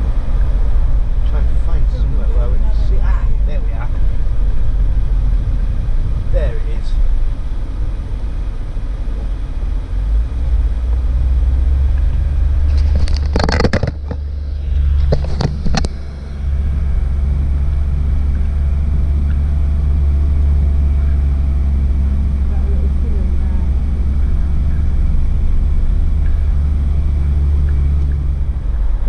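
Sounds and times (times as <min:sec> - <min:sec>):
engine and tyre rumble: 0:00.0 - 0:29.0
knocks and clatters: 0:12.0 - 0:21.5.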